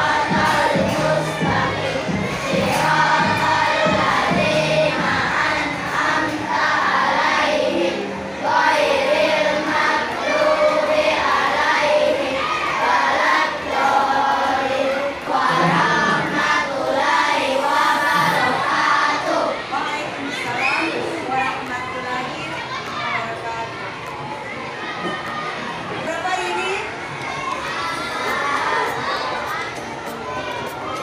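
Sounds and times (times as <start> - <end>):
children singing together: 0.0 - 21.1.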